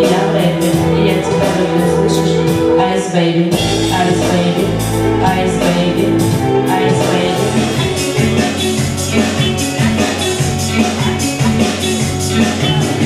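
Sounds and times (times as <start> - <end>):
woman singing into microphone: 0.0 - 8.4
backing track with beat: 0.0 - 13.0.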